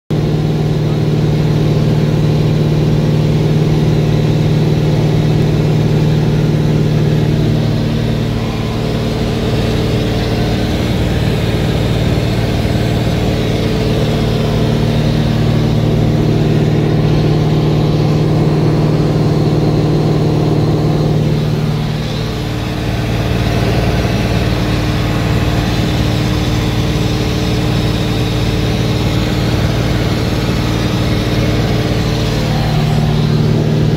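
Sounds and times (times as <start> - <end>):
airplane engine and propeller drone: 0.1 - 33.9.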